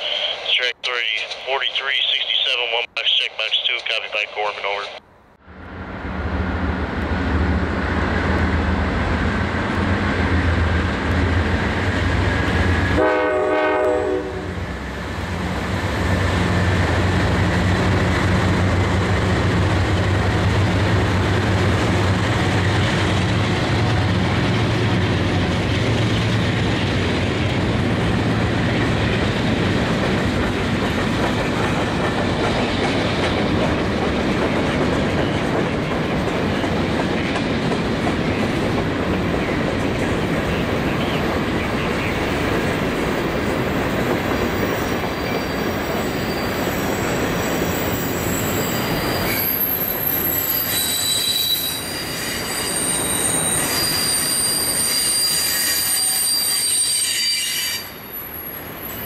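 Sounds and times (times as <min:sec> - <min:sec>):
diesel locomotive engines droning: 0:00.0 - 0:59.0
train horn blast: 0:13.0 - 0:14.6.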